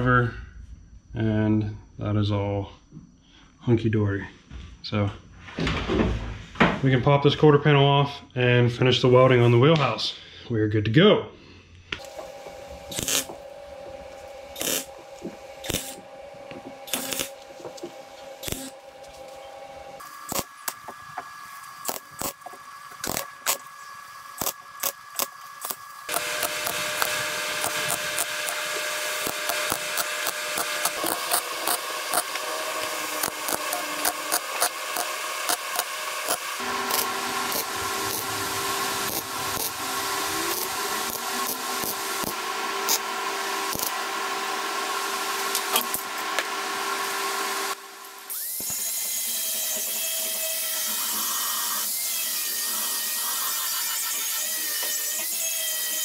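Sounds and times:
welder crackling bursts: 12.0s - 18.9s, 20.0s - 54.2s.

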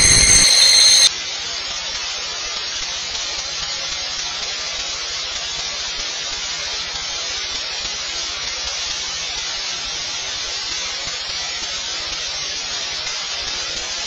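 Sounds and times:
static hiss: 0.0s - 1.1s.

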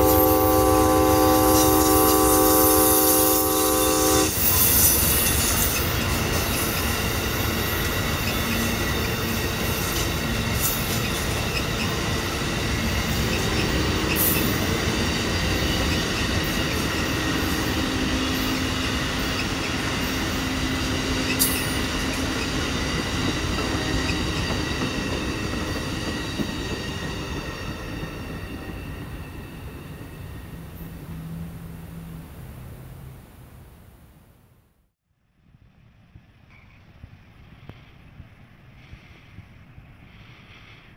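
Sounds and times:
high ringing wheel squeal: 0.0s - 12.0s
train wheels rumbling on rails: 0.0s - 32.7s, 35.5s - 40.9s.

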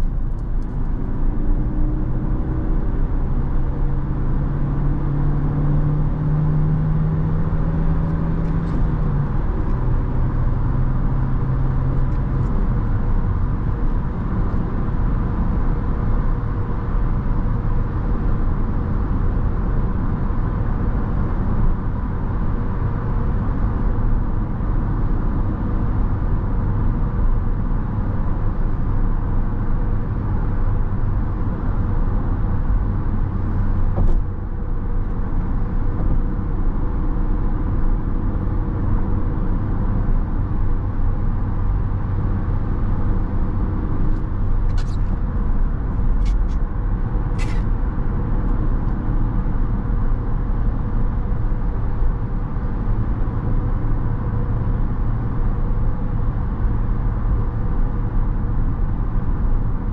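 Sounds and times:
car engine drone: 0.0s - 59.9s
tyre and road noise: 30.3s - 57.7s.

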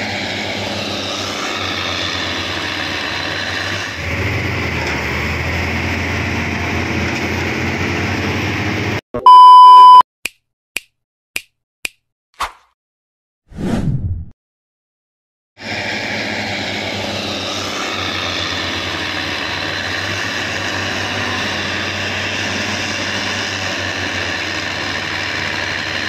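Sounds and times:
diesel excavator engine running: 0.0s - 10.0s, 15.6s - 26.0s
loud beep: 9.2s - 10.0s.

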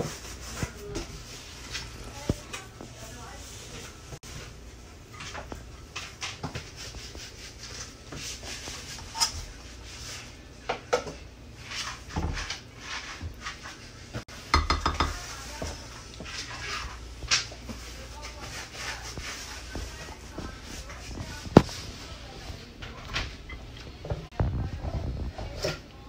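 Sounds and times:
spoon scraping metal pot: 11.6s - 20.2s.

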